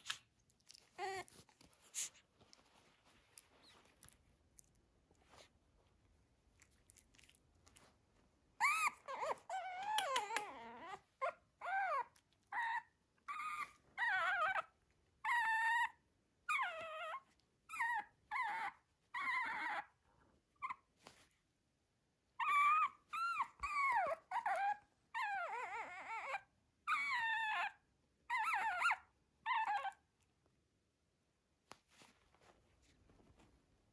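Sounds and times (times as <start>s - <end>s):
puppy whining: 0.0s - 5.5s, 6.5s - 21.3s, 22.3s - 30.3s.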